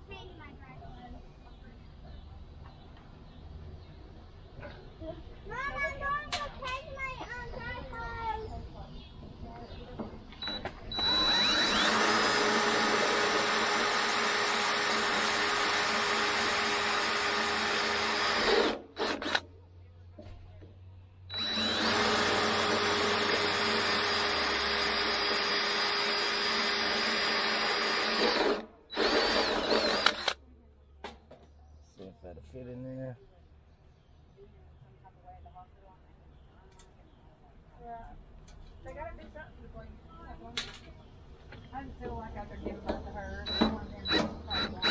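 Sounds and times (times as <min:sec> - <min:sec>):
cordless drill boring through steel: 0:10.4 - 0:19.4, 0:21.3 - 0:30.4, 0:43.4 - 0:44.9.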